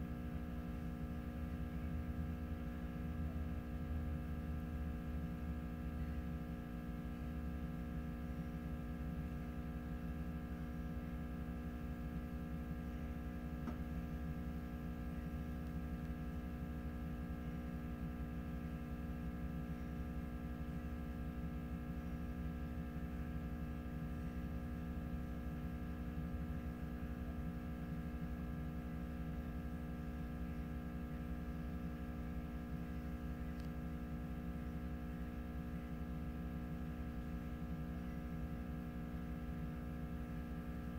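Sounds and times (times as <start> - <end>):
steady electrical hum: 0.0 - 40.9.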